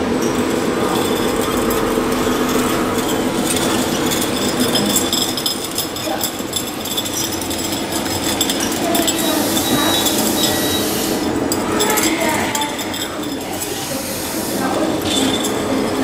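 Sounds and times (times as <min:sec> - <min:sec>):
toy compactor mechanical hum: 0:00.0 - 0:16.0
light clicks and clinks: 0:02.6 - 0:10.8.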